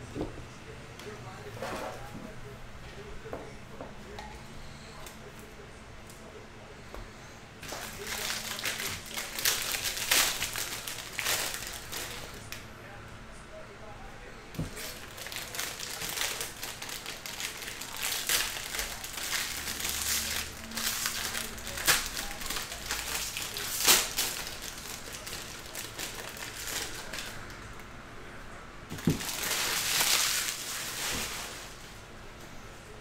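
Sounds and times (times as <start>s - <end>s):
wrapper rustling: 7.6s - 12.5s, 14.6s - 27.4s, 28.9s - 32.0s
foil wrappers crinkling: 7.6s - 12.6s, 14.6s - 27.6s, 28.9s - 32.0s.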